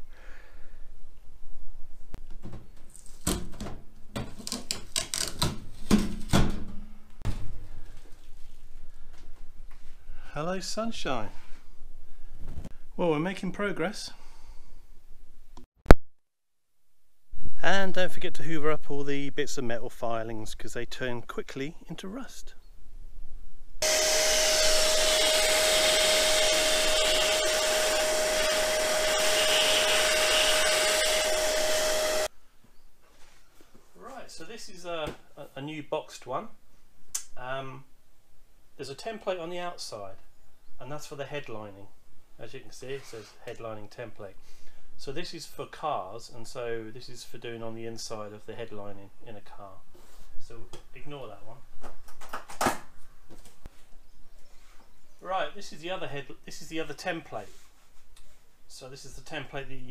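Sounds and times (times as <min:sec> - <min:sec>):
tape peeling rips: 0:04.4 - 0:06.4
vacuum cleaner whine: 0:23.8 - 0:32.3.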